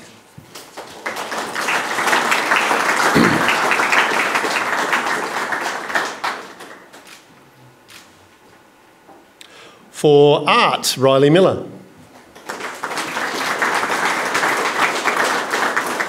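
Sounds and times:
audience applauding: 0:00.0 - 0:07.2, 0:12.2 - 0:16.0.

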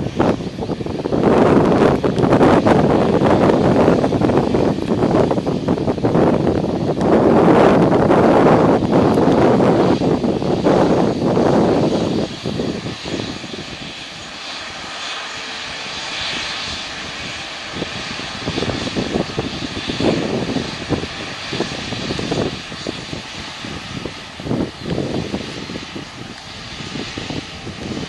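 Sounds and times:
jet engine rumble and whine: 0:00.0 - 0:28.0
wind buffeting microphone: 0:00.0 - 0:28.0.

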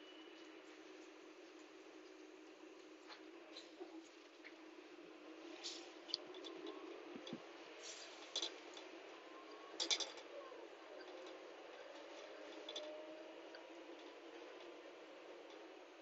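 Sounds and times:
faint road noise in vehicle: 0:00.0 - 0:16.0
light clicks and rattles: 0:09.8 - 0:10.4, 0:11.0 - 0:14.8.

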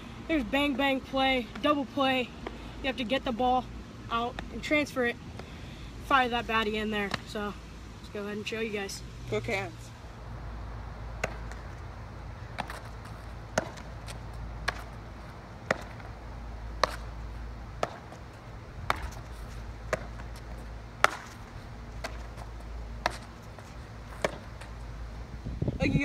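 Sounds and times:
baseball smacking into glove: 0:21.0 - 0:21.4.

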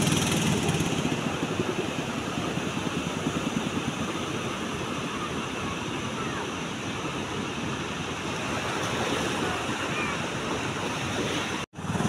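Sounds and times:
wind: 0:00.0 - 0:12.0.

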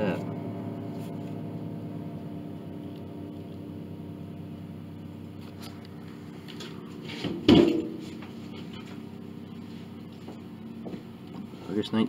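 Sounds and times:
steady low hum: 0:00.0 - 0:12.0
loud knock with ringing: 0:07.3 - 0:08.1.

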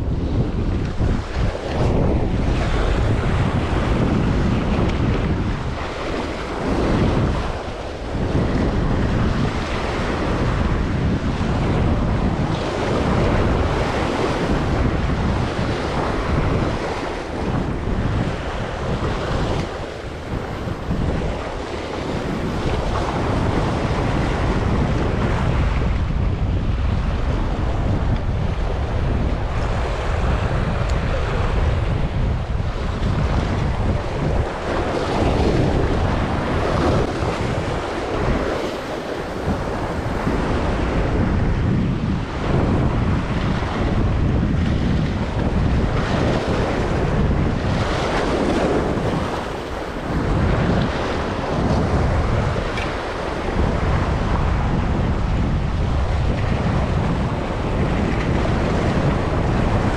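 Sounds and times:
sea waves breaking on rocks: 0:00.0 - 0:59.9
wind rumbling on microphone: 0:00.0 - 0:59.9.

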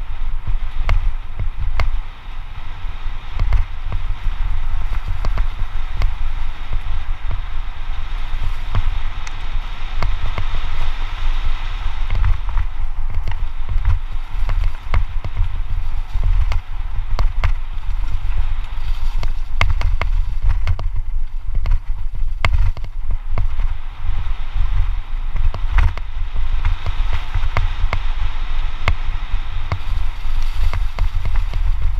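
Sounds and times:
bike rattling over bumps: 0:00.0 - 0:31.9
wind rumble on microphone: 0:00.0 - 0:31.9
tyres hissing on dirt: 0:28.3 - 0:31.9.

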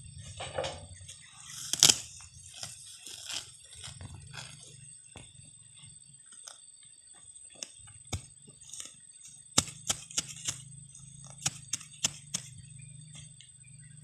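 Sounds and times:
hand hoe scraping soil: 0:01.3 - 0:04.7, 0:08.1 - 0:10.6, 0:11.2 - 0:12.6.

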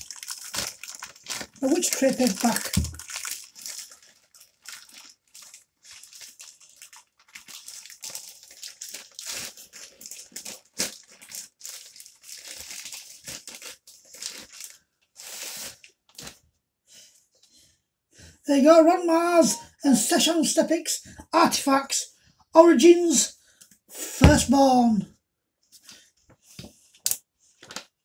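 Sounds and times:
plastic mailer bag crinkling: 0:00.0 - 0:14.8.

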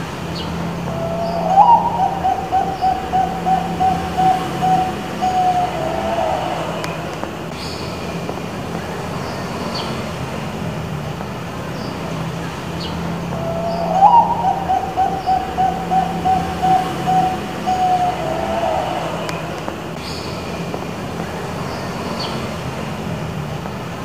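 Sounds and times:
steady low rumble: 0:00.2 - 0:09.0, 0:12.9 - 0:20.0
dove cooing: 0:00.7 - 0:07.5, 0:13.2 - 0:19.8.

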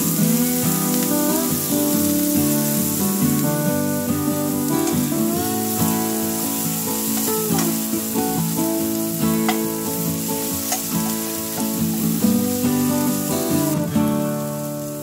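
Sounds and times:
onions sizzling in hot oil: 0:00.0 - 0:15.0
spatula stirring in a pan: 0:04.6 - 0:08.3, 0:09.3 - 0:12.3.

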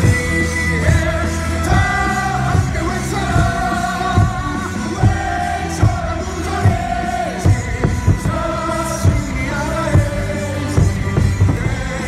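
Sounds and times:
cheer song over stadium speakers: 0:00.0 - 0:12.0
crowd singing along: 0:00.0 - 0:12.0.

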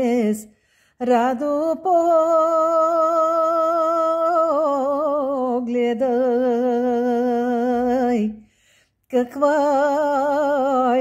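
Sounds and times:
woman singing unaccompanied: 0:00.0 - 0:08.4, 0:09.1 - 0:11.0
quick breath: 0:00.5 - 0:01.0, 0:08.4 - 0:09.0.

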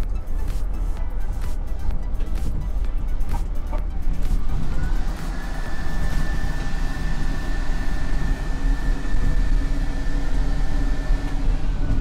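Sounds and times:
train rumble: 0:00.0 - 0:12.0
hand dryer motor whine: 0:03.6 - 0:12.0.

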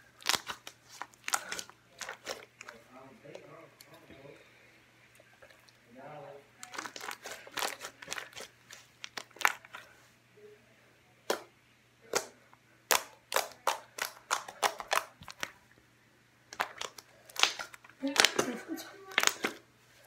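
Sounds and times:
hands kneading slime: 0:00.0 - 0:04.2, 0:06.6 - 0:10.0, 0:12.0 - 0:15.7, 0:16.5 - 0:19.7.

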